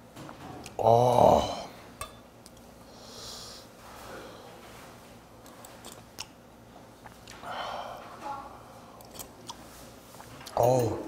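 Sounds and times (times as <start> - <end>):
person sniffing: 2.9 - 4.3.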